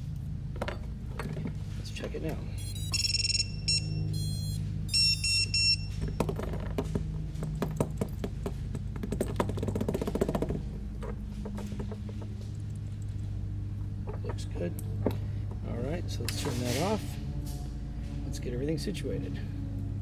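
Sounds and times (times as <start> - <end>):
drone startup beeps: 2.6 - 6.0.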